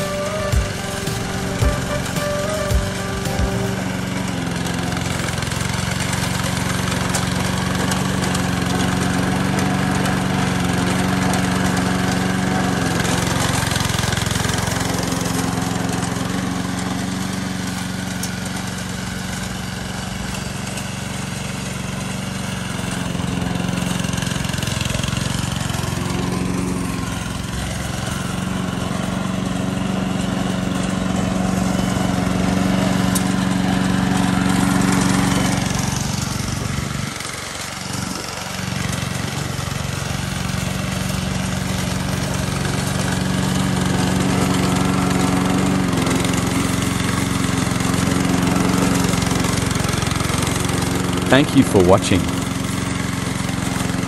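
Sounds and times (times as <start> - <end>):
small gasoline engine running: 0.0 - 54.0.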